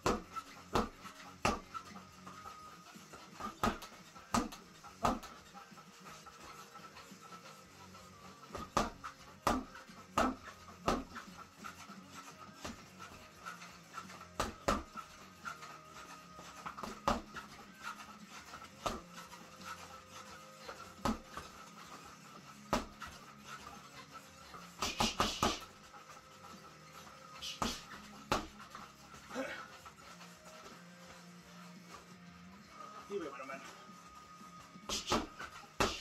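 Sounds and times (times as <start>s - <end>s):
boxing gloves thumping bag: 0.0s - 1.8s, 3.4s - 5.4s, 8.5s - 11.4s, 14.0s - 15.1s, 16.4s - 17.5s, 18.7s - 19.2s, 20.6s - 22.0s, 22.6s - 23.2s, 24.8s - 25.8s, 27.4s - 28.6s, 34.9s - 36.0s
heavy breathing: 9.1s - 32.1s.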